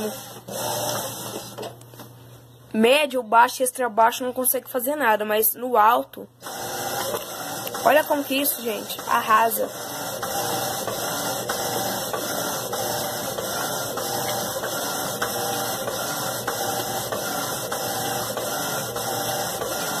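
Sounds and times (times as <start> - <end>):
washing machine motor and sloshing: 6.4 - 20.0.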